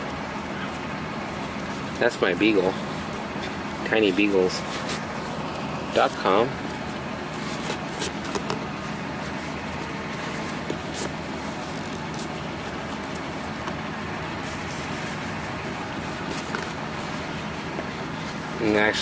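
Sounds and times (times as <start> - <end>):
hands handling leather: 0.0 - 19.0
steady background noise: 0.0 - 19.0.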